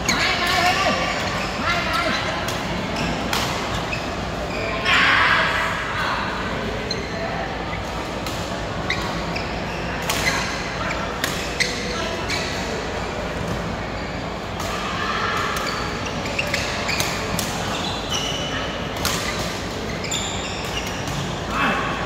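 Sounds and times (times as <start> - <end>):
shoe squeaks on court: 8.8 - 12.7, 15.6 - 21.4.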